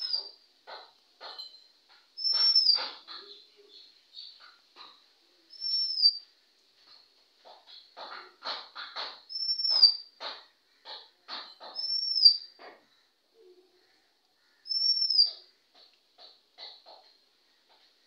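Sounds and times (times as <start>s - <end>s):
bird whistled song notes: 2.2s - 2.8s, 5.5s - 6.2s, 9.3s - 10.0s, 11.8s - 12.5s, 14.7s - 15.4s.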